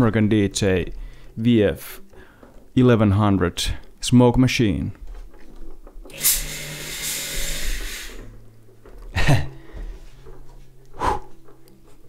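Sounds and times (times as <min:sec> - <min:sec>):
pump buzzing: 0:06.1 - 0:08.3
fog machine hissing rush: 0:06.2 - 0:08.3.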